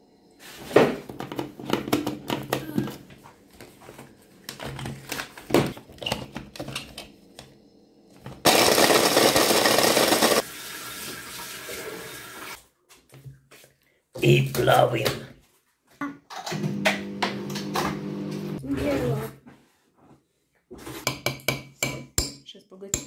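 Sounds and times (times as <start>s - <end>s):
electric food chopper grinding: 8.4s - 10.5s, 16.5s - 18.6s.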